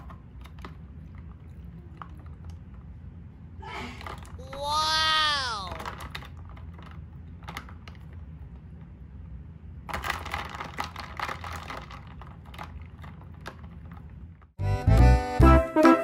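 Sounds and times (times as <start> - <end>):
ice and toy car clicking: 5.6 - 8.2, 9.9 - 14.1.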